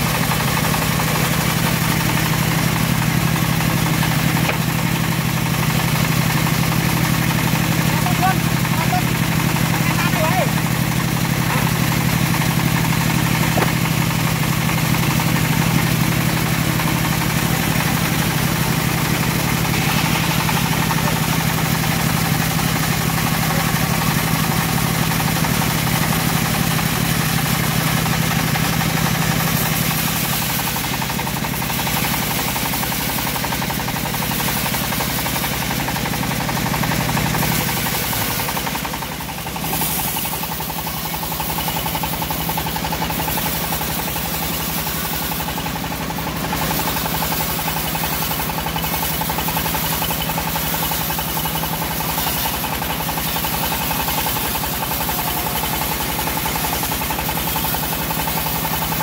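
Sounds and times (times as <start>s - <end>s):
bandsaw sawmill cutting log: 0.0s - 59.0s.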